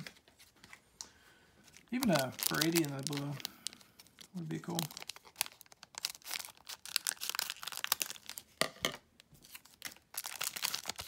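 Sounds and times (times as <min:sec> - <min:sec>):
foil wrapper tearing and crinkling: 0:01.8 - 0:08.6, 0:09.4 - 0:11.0.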